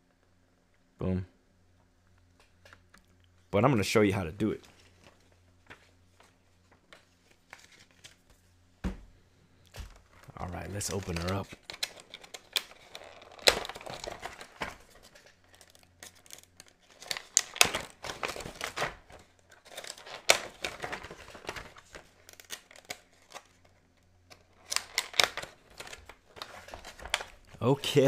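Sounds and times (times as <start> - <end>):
plastic cover crinkling: 9.6 - 28.0.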